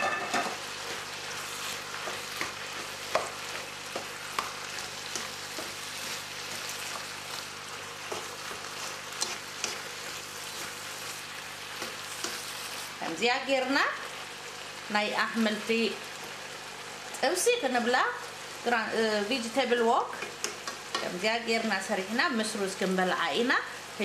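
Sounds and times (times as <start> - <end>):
spatula scraping a pan: 0.0 - 12.9
vegetables sizzling in a frying pan: 0.0 - 24.0.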